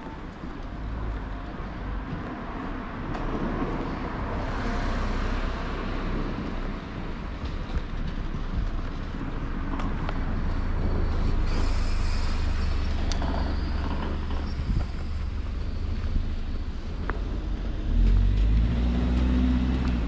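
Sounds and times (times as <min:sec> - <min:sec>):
cars driving past: 0:08.8 - 0:20.0.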